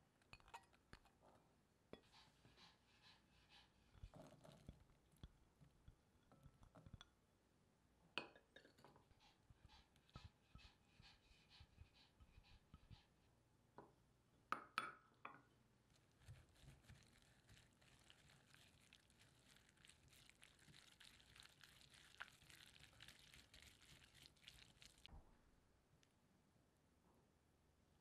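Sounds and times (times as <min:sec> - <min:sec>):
wet scraping and squishing: 0:15.9 - 0:25.1.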